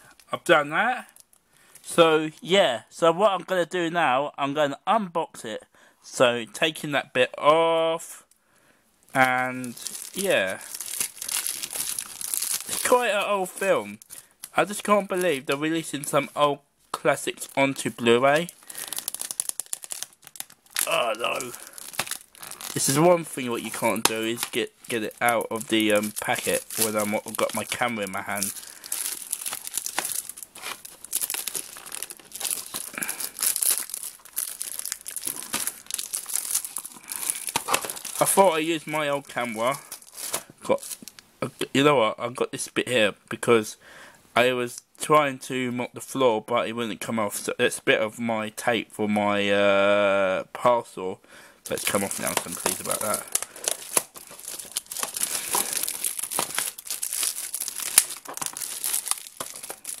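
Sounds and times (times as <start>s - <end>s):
plastic shrink-wrap crinkling: 1.1s - 1.4s, 9.1s - 16.4s, 17.1s - 41.2s, 51.7s - 60.0s.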